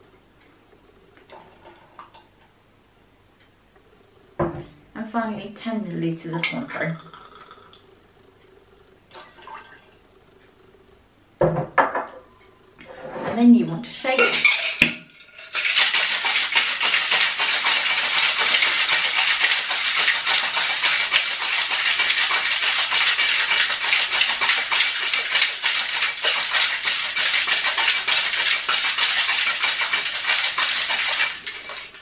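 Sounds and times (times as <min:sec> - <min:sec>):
ice rattling in metal shaker: 0:14.1 - 0:32.0.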